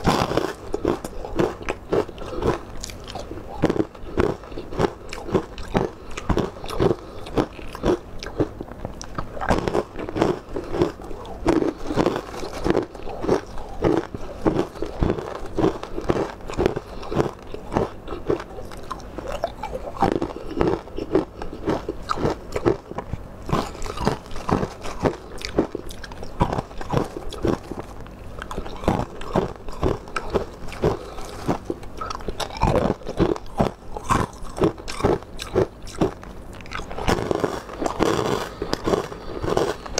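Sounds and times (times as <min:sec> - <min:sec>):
person crunching food: 0:00.0 - 0:39.9.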